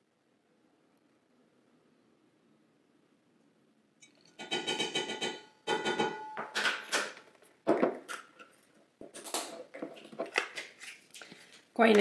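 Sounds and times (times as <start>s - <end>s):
metal bowl ringing: 4.4s - 6.6s.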